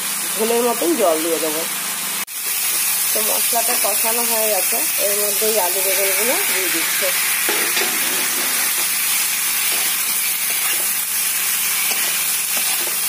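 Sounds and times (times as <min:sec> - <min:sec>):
vegetables sizzling in oil: 0:00.0 - 0:13.0
metal spatula scraping: 0:05.8 - 0:13.0.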